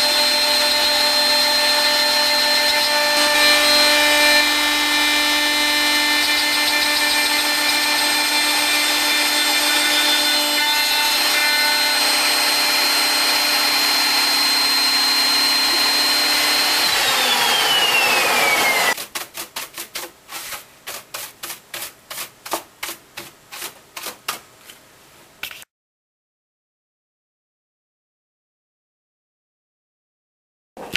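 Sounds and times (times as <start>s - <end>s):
router spindle whining: 0.0s - 19.0s.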